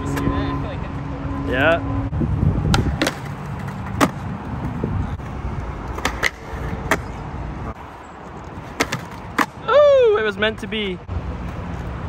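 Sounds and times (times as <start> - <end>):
skateboard wheels rolling and grinding: 2.6 - 9.7
skateboard clacking on ground: 2.7 - 4.2, 5.9 - 7.2, 8.4 - 9.6.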